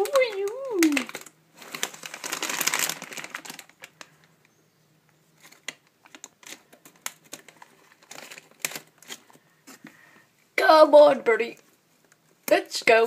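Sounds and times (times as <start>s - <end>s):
plastic bags crinkling: 0.0s - 4.4s, 5.3s - 10.0s.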